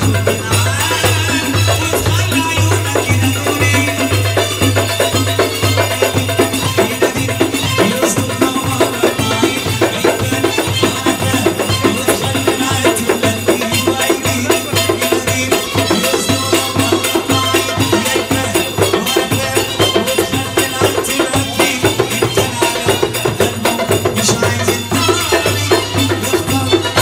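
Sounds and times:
deep drum beat: 0.0 - 27.0
hand drums beating fast rhythm: 0.0 - 27.0.

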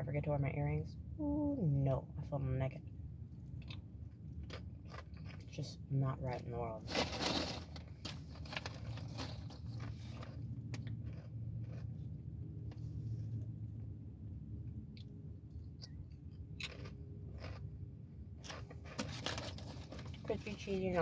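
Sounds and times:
steady low hum: 0.0 - 21.0
crunching and chewing corn snacks: 3.5 - 5.8, 6.8 - 12.3, 15.0 - 20.6.

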